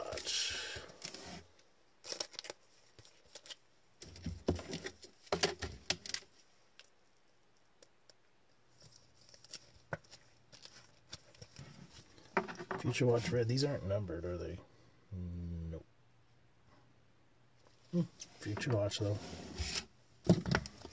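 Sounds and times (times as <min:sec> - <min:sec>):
plastic sleeve rustling: 0:00.0 - 0:06.9, 0:08.7 - 0:13.3.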